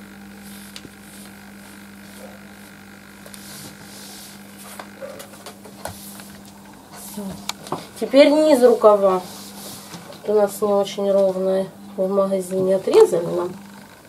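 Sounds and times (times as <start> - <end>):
low electrical hum: 0.0 - 14.0
paper rustling and brushing: 3.3 - 5.0, 8.9 - 10.2.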